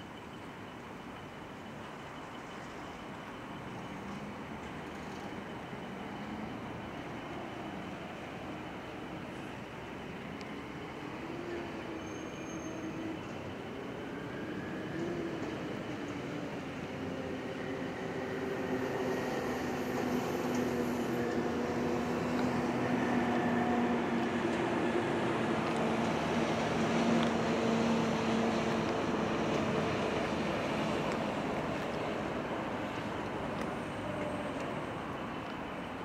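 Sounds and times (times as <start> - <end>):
vehicle passing slowly: 17.9 - 35.6.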